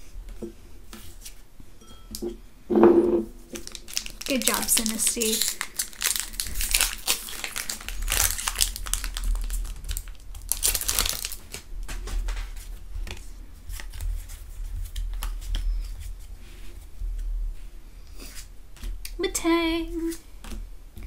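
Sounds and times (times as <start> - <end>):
foil wrapper crinkling and tearing: 3.5 - 11.7.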